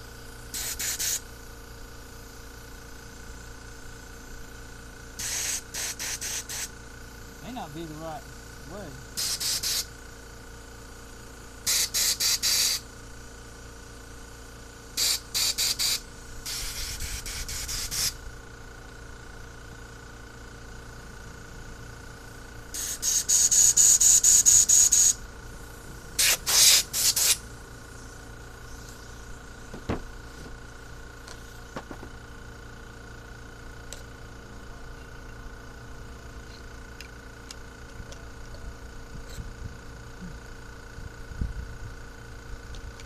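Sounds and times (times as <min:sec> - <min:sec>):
compressed air blow gun bursts: 0:00.0 - 0:10.2, 0:10.8 - 0:19.5, 0:21.6 - 0:32.4.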